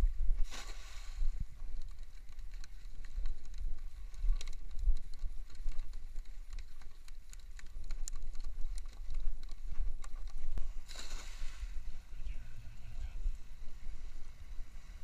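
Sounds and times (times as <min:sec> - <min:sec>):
light clicks and taps: 0:01.7 - 0:10.7.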